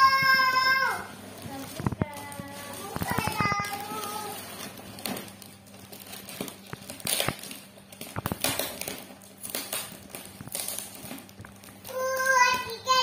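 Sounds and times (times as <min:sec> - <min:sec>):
plastic wrapping crinkling: 0:00.0 - 0:13.0.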